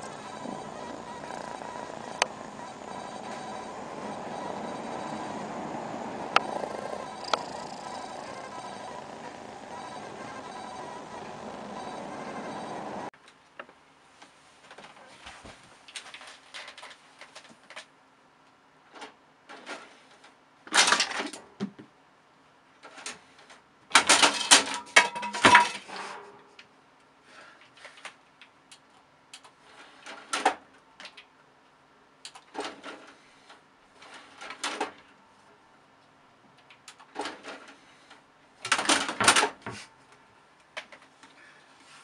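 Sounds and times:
rattling bursts: 0:00.0 - 0:13.1.

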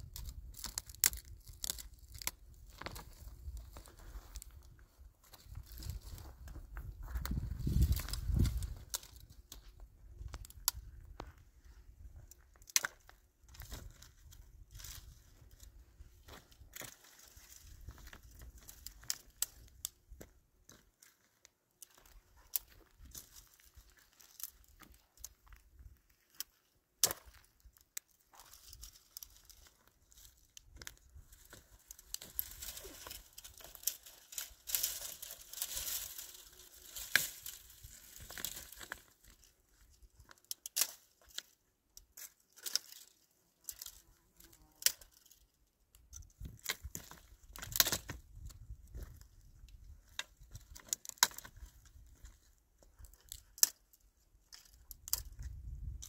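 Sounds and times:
thin material crinkling and tearing: 0:28.6 - 0:39.2.

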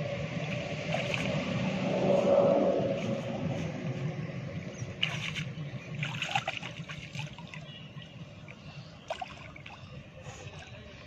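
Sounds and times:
low steady hum: 0:00.0 - 0:11.0
water sloshing and trickling: 0:00.0 - 0:11.0
crackly splashes: 0:04.9 - 0:10.8.

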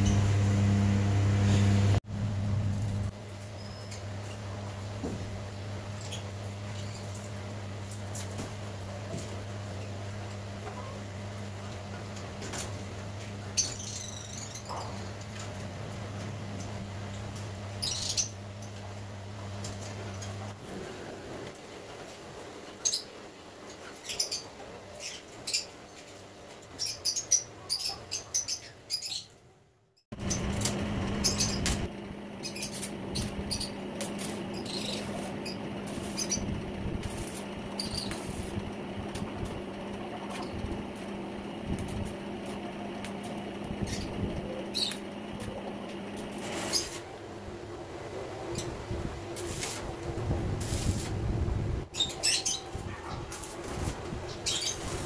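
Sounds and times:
arc welder crackling and humming: 0:00.0 - 0:22.1, 0:30.1 - 0:55.0
small birds chirping: 0:31.1 - 0:31.8, 0:32.4 - 0:36.6, 0:37.3 - 0:38.3, 0:43.8 - 0:45.2, 0:51.9 - 0:53.3, 0:54.3 - 0:54.9.

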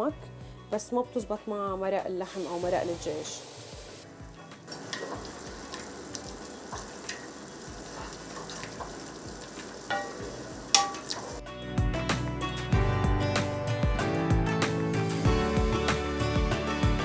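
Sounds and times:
vegetables sizzling in oil: 0:02.2 - 0:04.0, 0:04.7 - 0:11.4.

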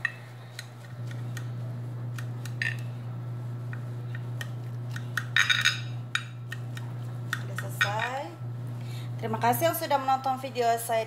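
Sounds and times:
low hum: 0:00.0 - 0:10.5.

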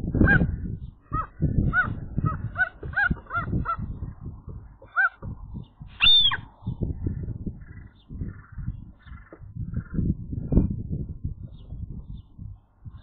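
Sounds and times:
gull alarm calls: 0:00.1 - 0:04.2, 0:04.8 - 0:05.3, 0:06.0 - 0:06.5, 0:07.6 - 0:10.0
low thumps and rustles: 0:01.4 - 0:13.0.

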